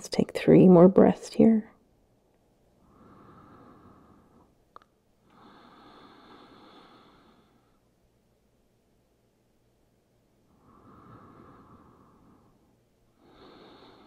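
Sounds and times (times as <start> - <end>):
woman breathing slowly: 2.7 - 8.0, 10.5 - 14.0.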